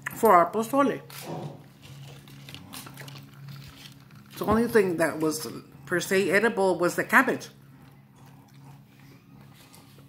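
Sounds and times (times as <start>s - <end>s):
low steady hum: 0.0s - 10.0s
person chewing food: 1.1s - 4.5s, 7.5s - 10.0s.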